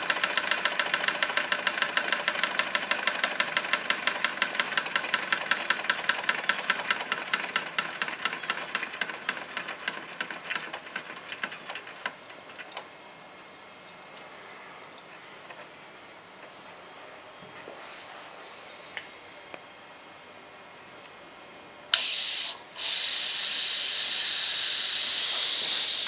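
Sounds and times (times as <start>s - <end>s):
toy steam engine chuffing: 21.9s - 26.0s.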